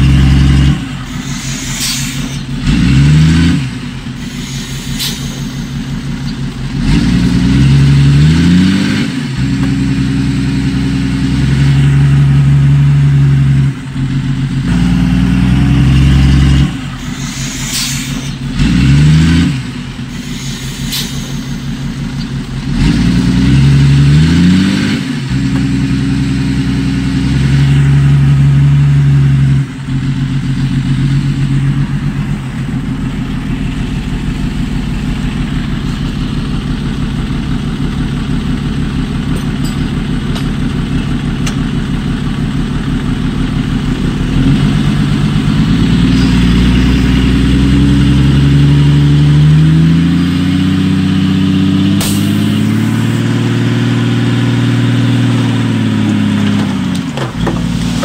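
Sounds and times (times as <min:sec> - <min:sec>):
diesel engine revving: 0:00.0 - 0:58.0
high-pitched squeaks and clanks: 0:01.1 - 0:02.5.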